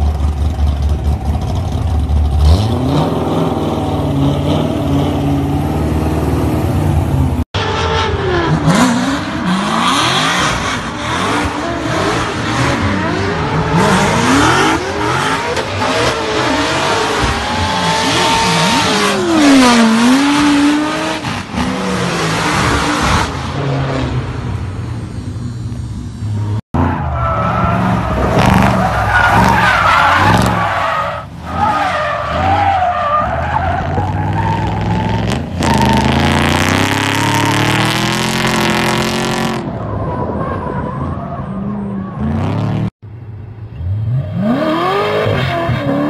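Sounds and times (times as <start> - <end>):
spinning tyres rushing: 0.0 - 42.8
car engine at high revs: 2.2 - 26.6, 34.4 - 39.8
drifting car engine revving: 2.4 - 24.3, 26.4 - 39.9.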